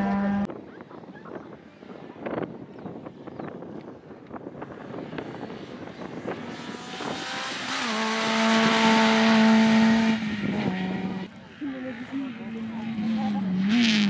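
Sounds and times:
rally car engine high-revving: 0.0 - 0.5, 4.8 - 14.0.

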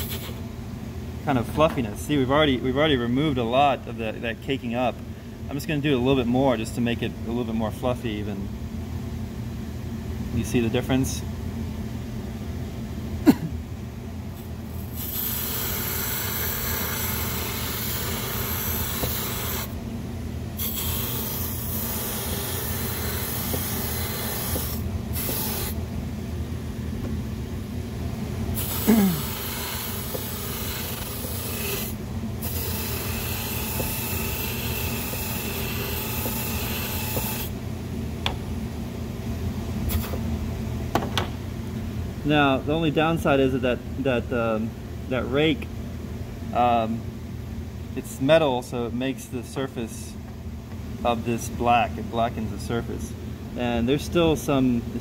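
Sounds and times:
buffer motor humming: 21.4 - 38.8.

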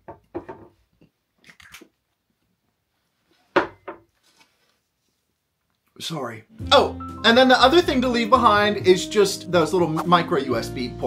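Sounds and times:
wet mouth noises: 1.4 - 2.0.

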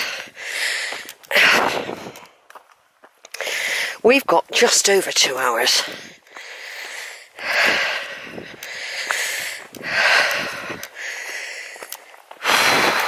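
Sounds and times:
heavy breathing: 0.0 - 2.4, 3.3 - 4.0, 5.7 - 13.0.

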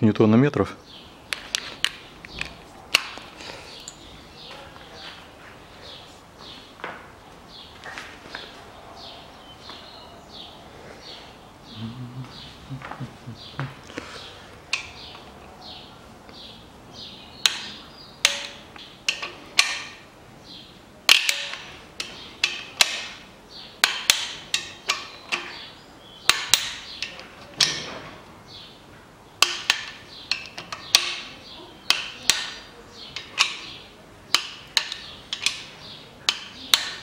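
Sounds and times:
torque wrench clicking: 17.4 - 20.0.

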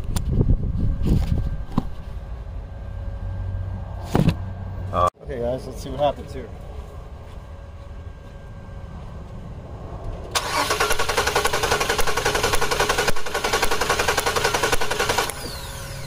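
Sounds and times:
car engine cranking on starter: 10.3 - 16.0.

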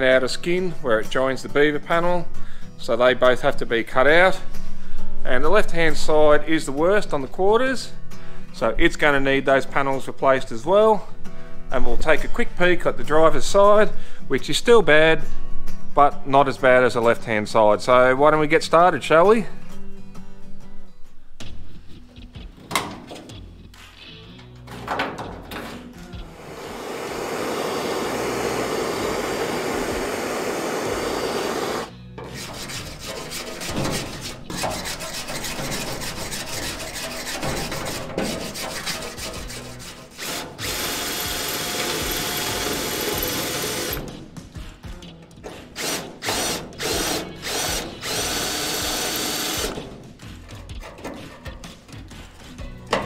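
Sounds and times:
power tool running on metal: 26.4 - 31.9, 40.2 - 44.0, 45.8 - 49.8.

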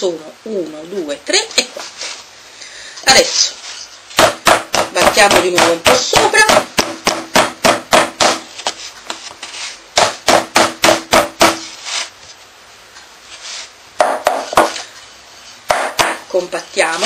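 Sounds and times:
rolling pin beating dough: 4.1 - 11.8, 14.0 - 14.8, 15.7 - 17.0.

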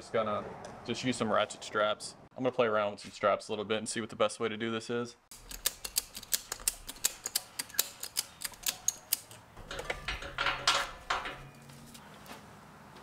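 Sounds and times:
ratchet strap clicking: 5.3 - 9.4.

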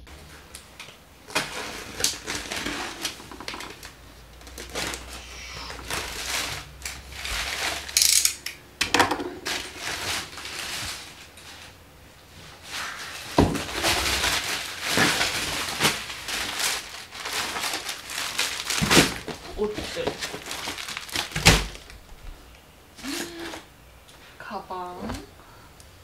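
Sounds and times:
crackles and tearing rustles: 0.3 - 8.3, 9.4 - 22.3.

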